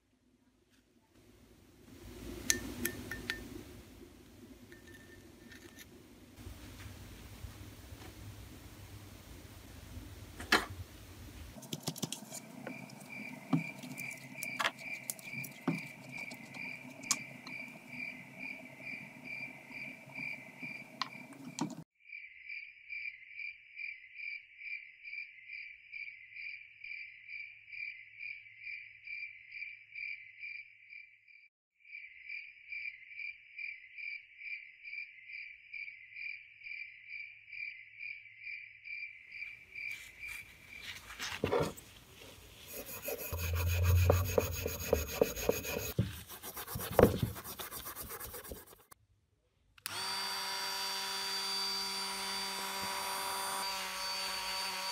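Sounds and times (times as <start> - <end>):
cricket chirping: 12.0 - 21.5, 31.9 - 41.0
low hum: 42.6 - 46.8.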